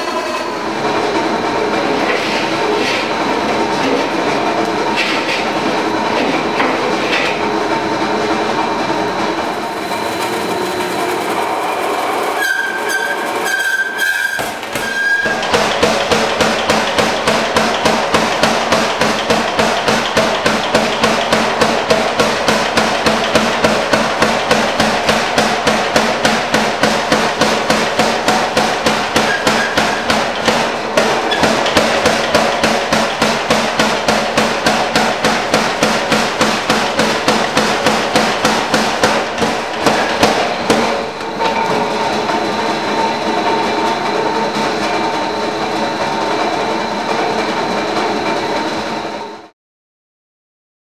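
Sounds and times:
machine humming: 0.0s - 13.6s, 14.5s - 49.5s
power hammer striking hot metal: 14.3s - 43.7s.

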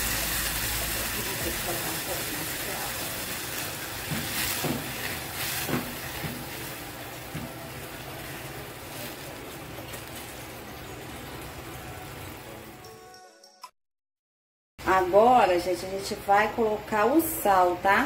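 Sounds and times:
water sizzling and bubbling in pan: 0.0s - 12.8s
spatula knocking against pan: 4.0s - 6.5s.

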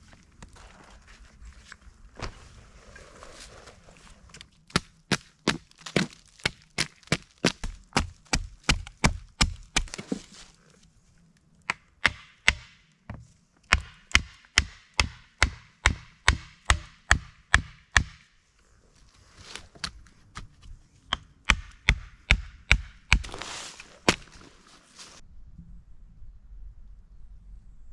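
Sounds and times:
hatchet chopping wood: 4.7s - 10.2s, 11.7s - 12.8s, 13.7s - 18.2s, 21.1s - 23.4s.

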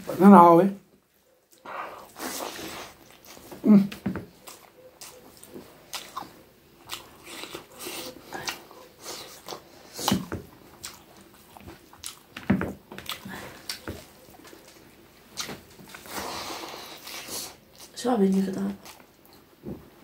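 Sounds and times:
chewing and biting: 4.3s - 19.5s.

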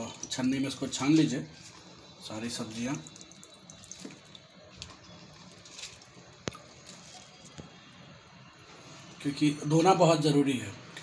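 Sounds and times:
water sloshing and dripping: 0.0s - 7.8s.

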